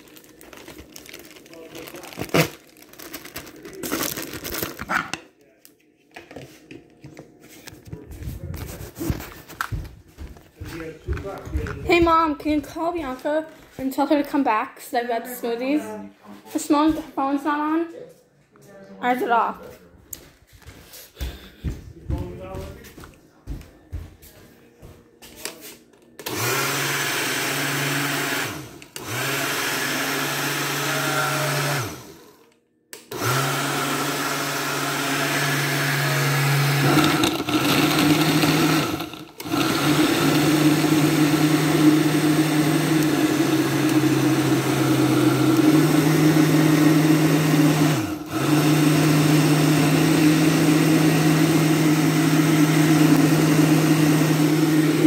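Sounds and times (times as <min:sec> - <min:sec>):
blender motor running: 0:00.0 - 0:04.9, 0:26.2 - 0:32.4, 0:33.0 - 0:55.0.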